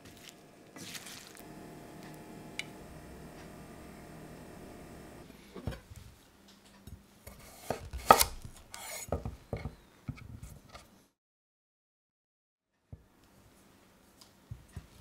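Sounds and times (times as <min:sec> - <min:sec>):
knife cutting on wooden board: 0:07.4 - 0:09.2.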